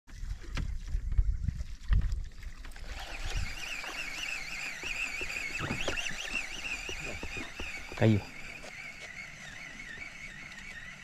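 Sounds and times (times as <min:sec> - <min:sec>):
water sounds: 0:00.1 - 0:11.0
high wavering whistle tone: 0:03.0 - 0:11.0.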